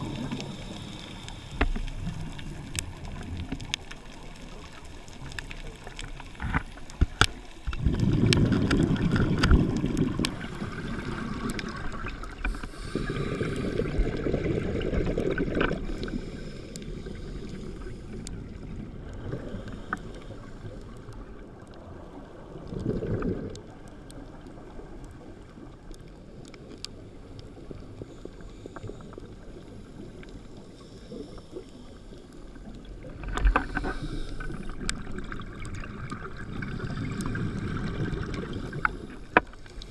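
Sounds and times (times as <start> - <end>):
low hiss: 0.0 - 8.0, 9.6 - 22.5, 23.9 - 35.3
bubbles rushing: 7.8 - 15.8
diver breathing underwater: 12.4 - 15.1, 15.7 - 18.3, 19.1 - 21.0, 33.5 - 34.8.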